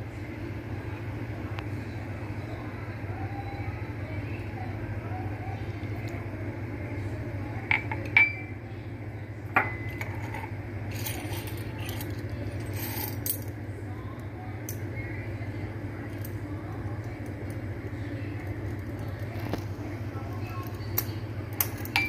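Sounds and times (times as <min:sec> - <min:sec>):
steady low hum: 0:00.0 - 0:22.0
metal spoons clinking on ceramic bowl: 0:21.6 - 0:22.0.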